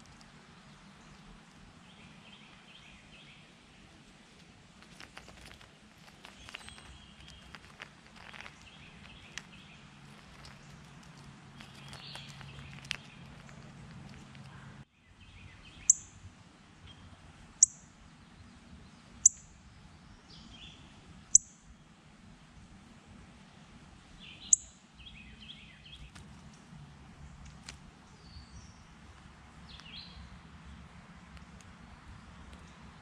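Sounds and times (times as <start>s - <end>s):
birds singing: 0.0s - 4.1s, 4.8s - 16.2s, 16.8s - 21.8s, 24.1s - 26.4s, 27.2s - 29.0s, 29.6s - 30.8s
bird chip calls: 4.8s - 14.8s.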